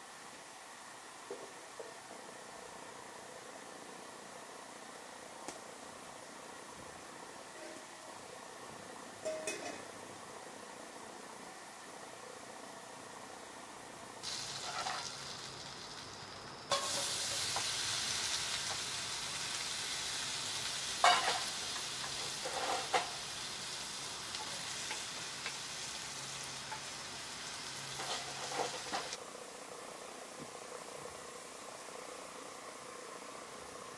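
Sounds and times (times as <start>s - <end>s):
butter sizzling in frying pan: 14.2s - 29.2s
apples sizzling in butter: 14.2s - 30.0s.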